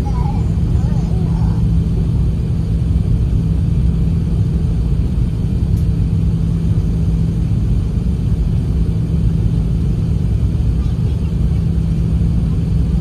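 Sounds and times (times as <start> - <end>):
airplane cabin engine roar: 0.0 - 13.0
constant hum: 0.0 - 13.0.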